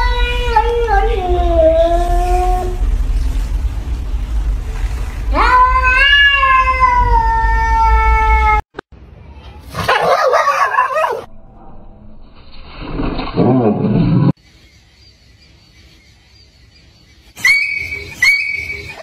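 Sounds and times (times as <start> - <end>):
cat meowing: 5.3 - 8.6
dogs barking roughly: 9.8 - 11.3.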